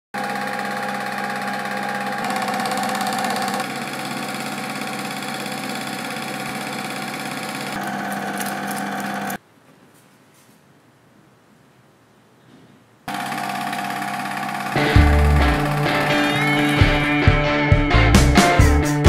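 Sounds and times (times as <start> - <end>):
film projector clatter: 0.2 - 9.4, 13.1 - 17.1
motor hum: 0.2 - 9.4, 13.1 - 17.4.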